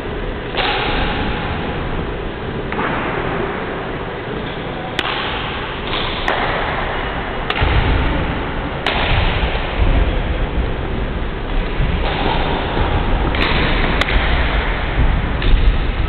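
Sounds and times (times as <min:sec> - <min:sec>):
racket striking shuttlecock: 0:00.5 - 0:01.5, 0:04.4 - 0:09.8, 0:11.5 - 0:14.8.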